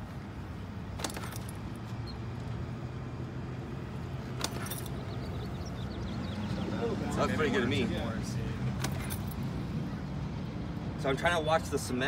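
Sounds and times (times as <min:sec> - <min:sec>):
vehicle traffic hum: 0:00.0 - 0:12.0.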